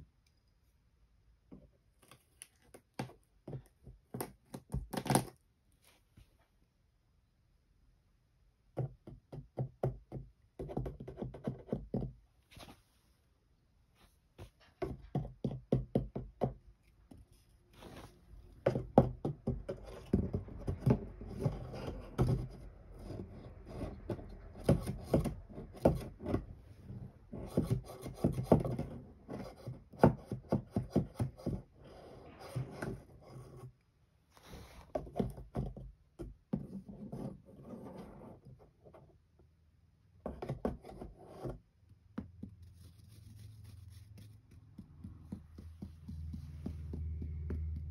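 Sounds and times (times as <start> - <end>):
scratching on cardboard: 16.9 - 26.5, 27.3 - 33.7, 42.4 - 47.9.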